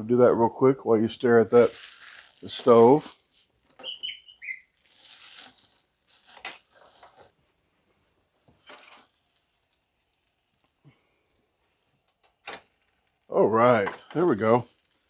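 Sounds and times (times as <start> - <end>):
rustling and crinkling: 1.3 - 13.2.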